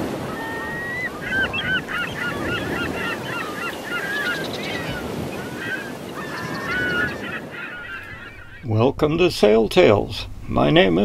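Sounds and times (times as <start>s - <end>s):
flock of birds calling: 0.0s - 9.0s
water rushing: 0.0s - 11.0s
wind rushing: 4.5s - 11.0s.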